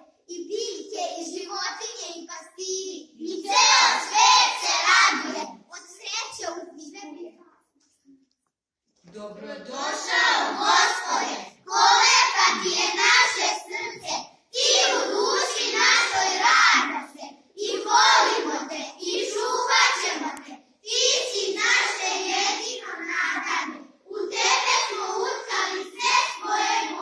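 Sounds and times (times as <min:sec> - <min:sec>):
children singing: 0:03.3 - 0:05.6, 0:09.6 - 0:27.0.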